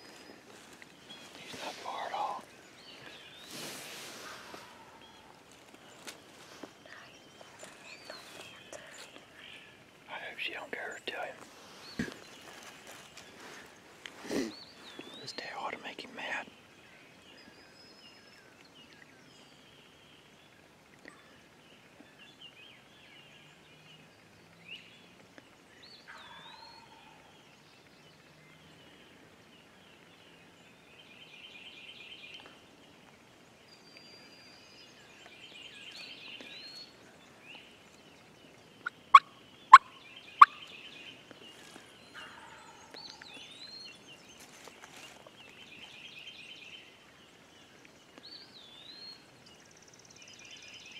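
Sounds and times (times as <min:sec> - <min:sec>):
songbird calls: 0:00.0 - 0:50.9
distant turkey gobbling: 0:38.8 - 0:40.6.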